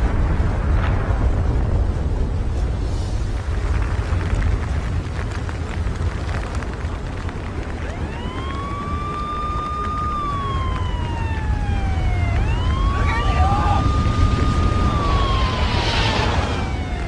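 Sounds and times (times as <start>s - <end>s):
steady low rumble: 0.0s - 17.0s
fire siren wailing: 7.4s - 17.0s.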